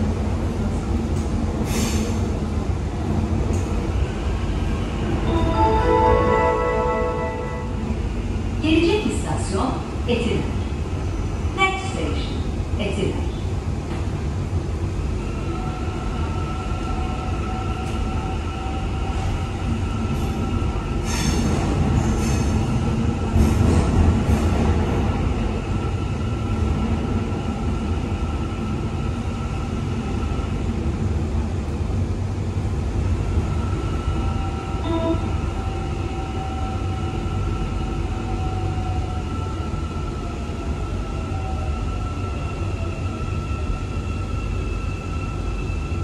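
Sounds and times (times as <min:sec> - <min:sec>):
metro wheels rumbling on rail: 0:00.0 - 0:46.0.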